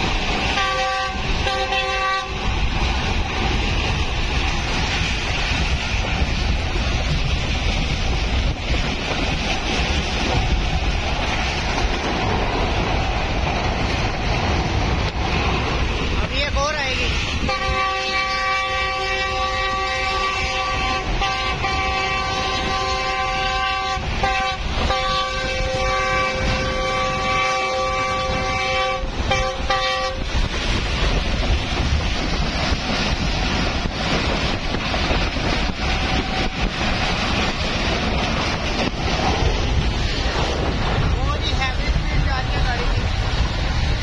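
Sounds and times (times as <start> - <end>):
train running on track: 0.0 - 44.0
wind on microphone: 0.0 - 44.0
train air horn: 0.5 - 2.4, 17.4 - 30.3.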